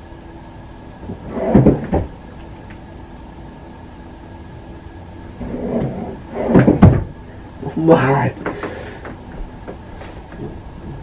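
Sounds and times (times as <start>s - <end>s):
faint steady hum: 0.0s - 11.0s
knocks and rustling: 1.0s - 2.1s, 5.8s - 7.2s.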